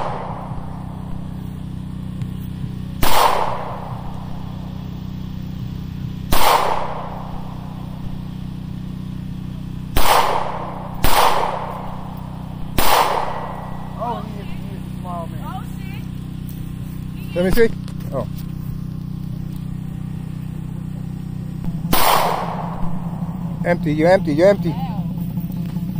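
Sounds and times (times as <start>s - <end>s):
pistol shots with echo: 3.0s - 4.0s, 6.3s - 7.4s, 9.9s - 12.0s, 12.7s - 14.0s, 21.8s - 23.1s.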